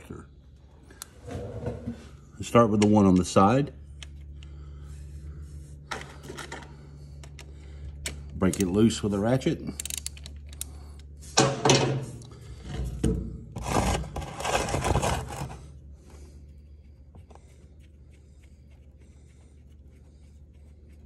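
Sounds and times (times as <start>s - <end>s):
drain plug scraping and rubbing: 13.6s - 15.7s.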